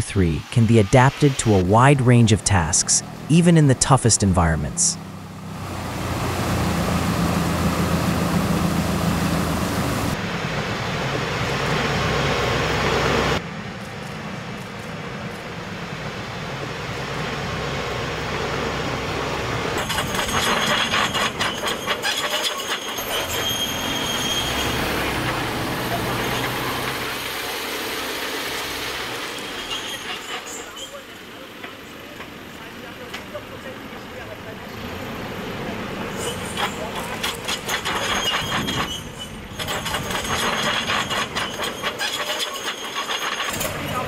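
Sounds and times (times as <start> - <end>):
diesel engine running at low revs: 0.0 - 13.4.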